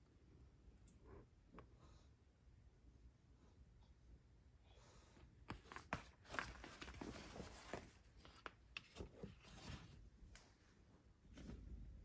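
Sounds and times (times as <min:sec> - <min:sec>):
soft rustling: 0:05.5 - 0:12.0.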